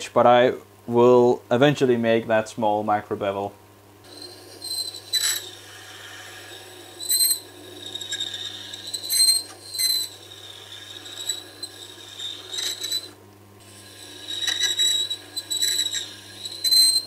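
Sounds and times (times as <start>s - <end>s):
low machine hum: 0.0s - 17.0s
high scraping squeal of grinding: 4.1s - 17.0s.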